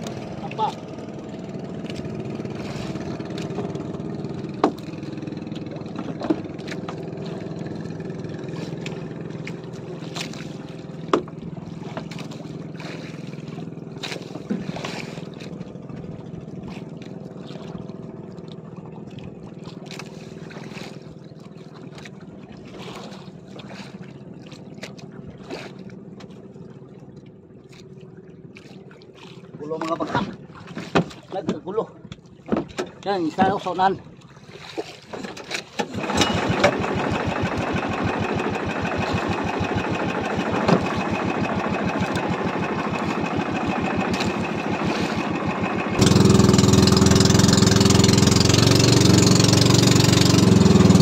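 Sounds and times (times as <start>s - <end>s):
boat engine idling: 0.0s - 51.0s
sharp knocks and clicks: 4.5s - 5.0s, 30.9s - 33.6s.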